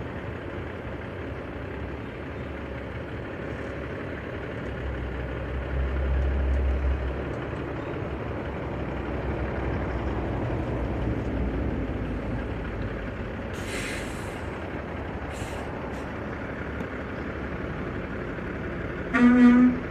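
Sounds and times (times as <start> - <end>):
truck diesel engine idling: 0.0 - 19.9
air brake hiss: 13.6 - 14.5, 15.3 - 15.7.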